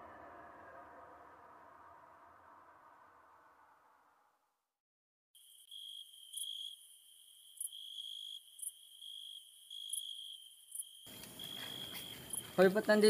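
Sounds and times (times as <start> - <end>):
crickets chirping: 5.4 - 13.0.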